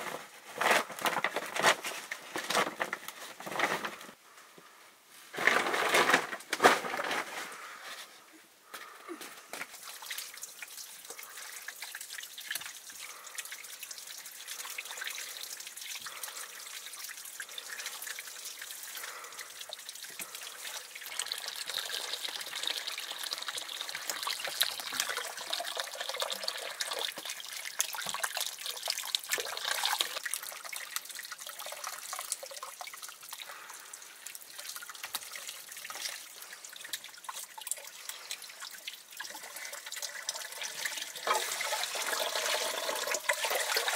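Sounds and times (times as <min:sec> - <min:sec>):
small drips and clicks: 0:09.5 - 0:41.5
water trickling and splashing: 0:09.5 - 0:43.9.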